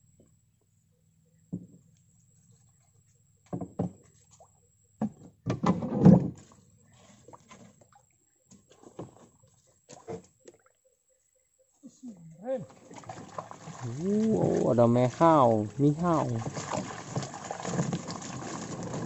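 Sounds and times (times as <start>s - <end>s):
knocks in a wooden boat: 3.5s - 4.0s, 5.0s - 6.4s.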